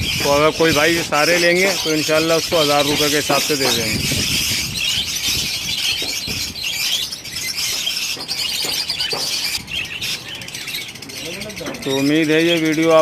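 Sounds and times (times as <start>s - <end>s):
budgerigars chattering and chirping: 0.0s - 13.0s.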